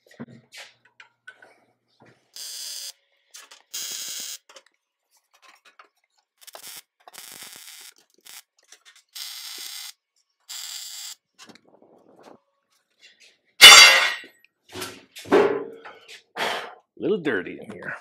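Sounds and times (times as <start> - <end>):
welder arc crackling: 2.4 - 4.6, 6.4 - 11.2.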